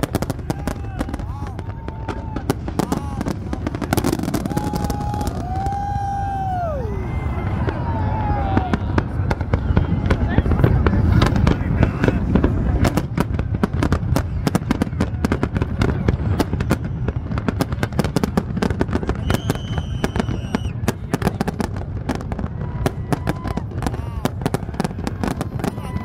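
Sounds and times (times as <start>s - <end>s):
fireworks cracks and bangs: 0.0s - 26.0s
high steady whistle: 19.2s - 20.8s.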